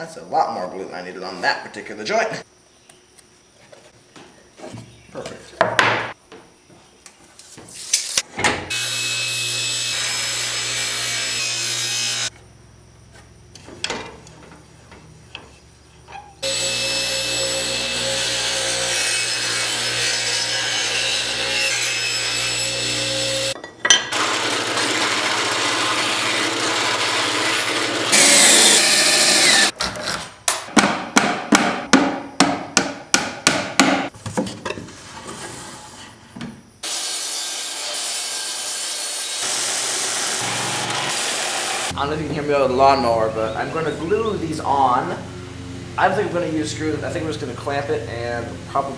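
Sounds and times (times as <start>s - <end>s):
table saw cutting wood: 8.7s - 12.3s, 16.4s - 29.8s, 36.8s - 42.0s.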